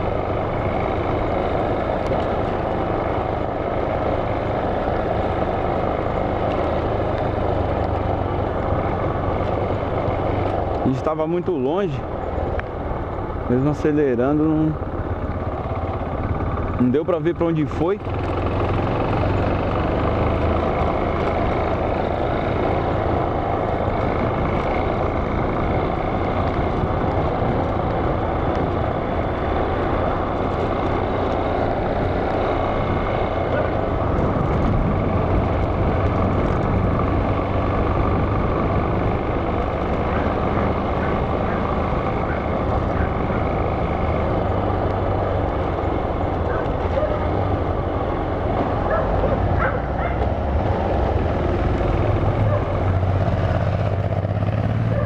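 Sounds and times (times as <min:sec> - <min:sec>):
motorcycle engine running: 0:00.0 - 0:55.0
wind rushing over microphone: 0:32.1 - 0:55.0.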